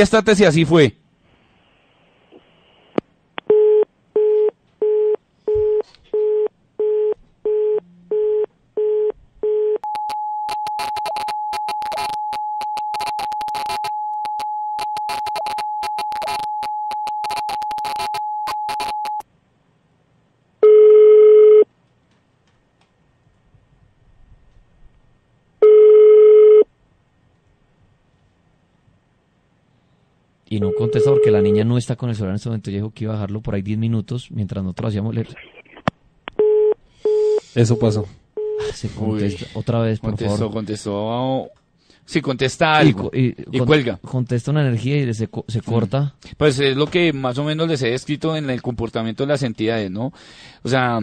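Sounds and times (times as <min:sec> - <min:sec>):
telephone ringback tone: 0:03.5 - 0:19.2, 0:20.6 - 0:21.6, 0:25.6 - 0:26.6, 0:30.6 - 0:31.6
keypad beeps: 0:09.8 - 0:19.2
line tone with clicks: 0:09.8 - 0:19.2.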